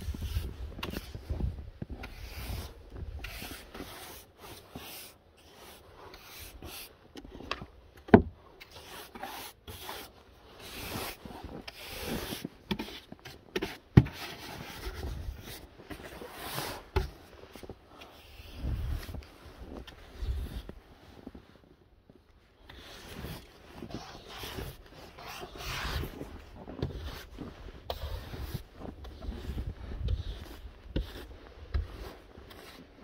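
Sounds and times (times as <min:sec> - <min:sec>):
brush sweeping snow: 0:00.0 - 0:07.5, 0:08.4 - 0:21.8, 0:22.4 - 0:33.0.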